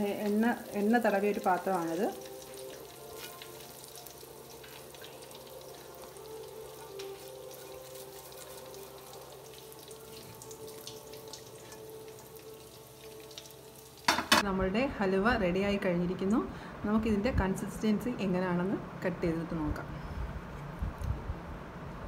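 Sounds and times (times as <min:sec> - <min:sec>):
halwa sizzling in a pan: 0:00.0 - 0:14.4
spatula stirring in a pan: 0:02.4 - 0:08.9.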